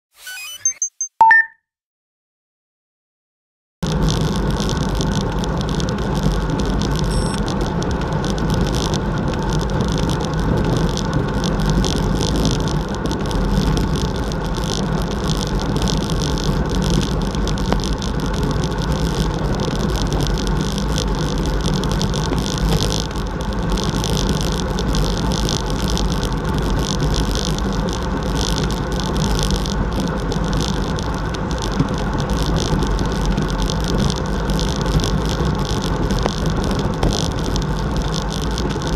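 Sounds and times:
bike tyre and road noise: 3.8s - 38.9s.

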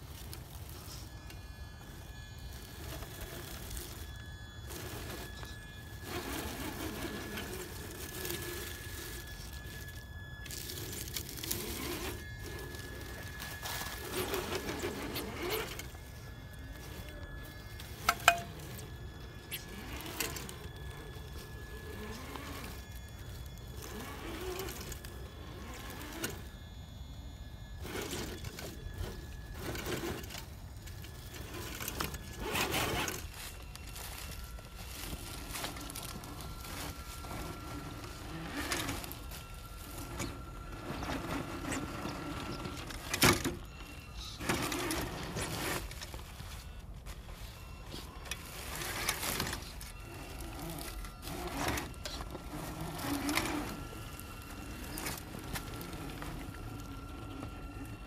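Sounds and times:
small electric motor whirring: 0.0s - 58.0s
dry leaves crunching: 31.4s - 40.1s.

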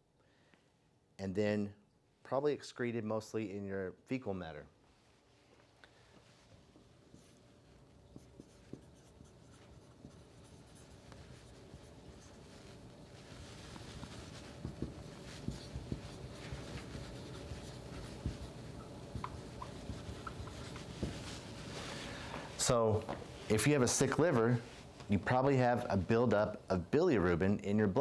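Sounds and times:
marker writing on whiteboard: 6.8s - 21.8s.

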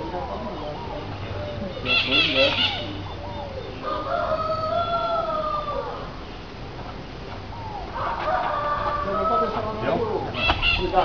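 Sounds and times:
rooster crowing: 3.6s - 6.1s, 7.9s - 11.0s.

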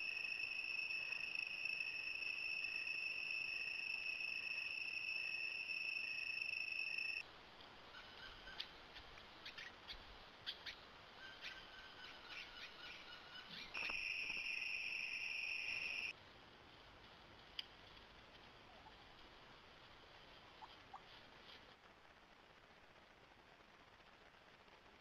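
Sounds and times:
night insect chorus: 0.0s - 7.2s, 11.2s - 16.2s.

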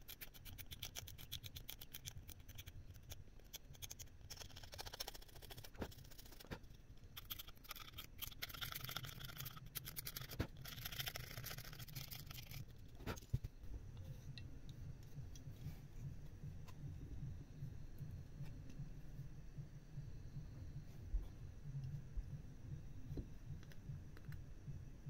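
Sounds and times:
knife scratching circuit board: 0.0s - 13.4s.

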